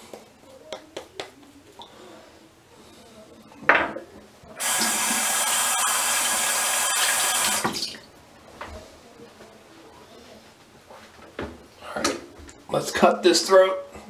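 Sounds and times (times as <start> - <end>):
faucet running into sink: 4.6 - 8.0.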